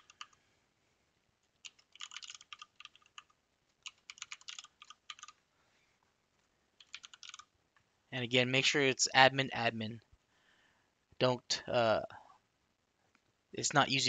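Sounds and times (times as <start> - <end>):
keyboard typing: 0.0 - 0.4, 1.4 - 5.4, 6.8 - 7.5.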